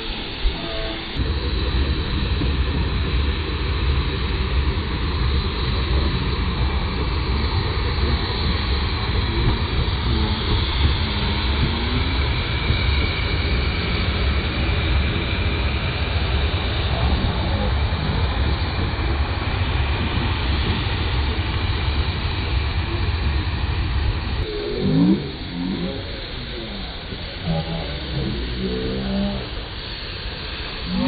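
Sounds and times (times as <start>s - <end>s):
miniature steam locomotive rumble: 0.0s - 31.0s.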